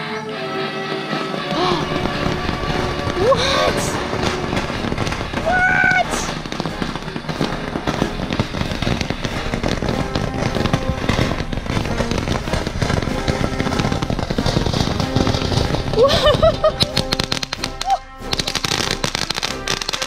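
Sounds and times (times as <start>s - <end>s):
fountain firework crackling: 1.0s - 20.0s.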